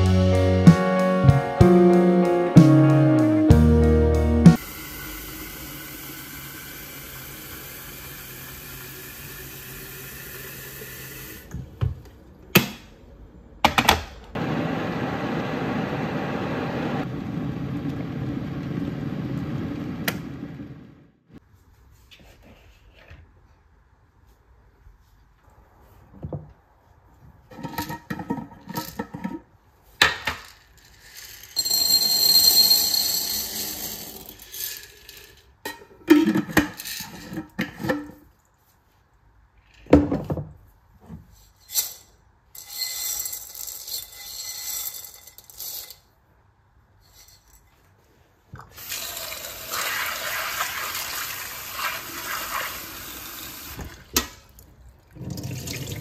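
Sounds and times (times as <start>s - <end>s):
dried beans rattling into bowl: 30.4s - 35.5s
tap water running into sink: 55.1s - 56.0s.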